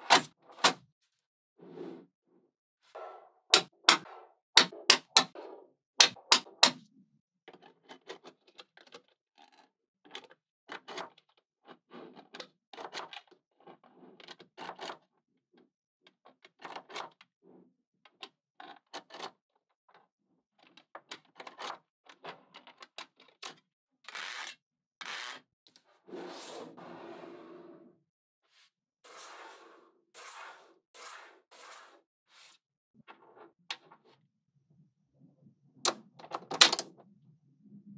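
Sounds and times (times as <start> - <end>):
magnetic balls clicking together: 36.2 - 36.9
rattle of balls: 36.2 - 36.9.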